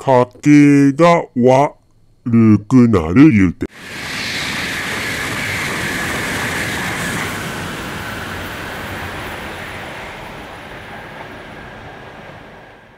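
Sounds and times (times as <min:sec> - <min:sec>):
train passing at speed: 0:03.8 - 0:12.9.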